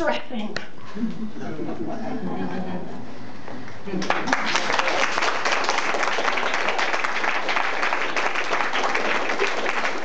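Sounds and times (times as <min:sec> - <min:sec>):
audience applauding: 0:04.0 - 0:10.0.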